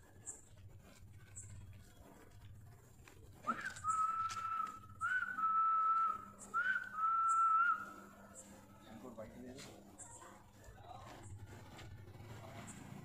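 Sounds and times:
person whistling long notes: 3.5 - 8.0.

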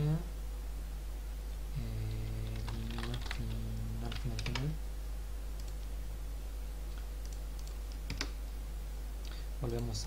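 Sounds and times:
person humming: 1.7 - 4.5.

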